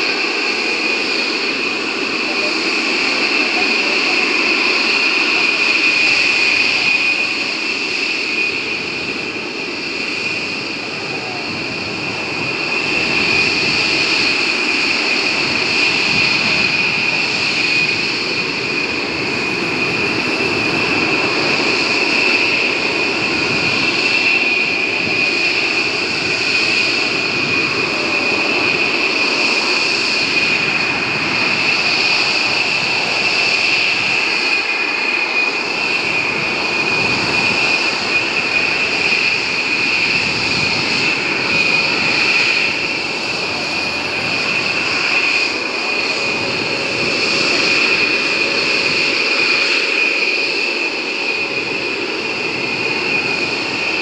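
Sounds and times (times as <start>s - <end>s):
jet engines running with whine: 0.0s - 54.0s.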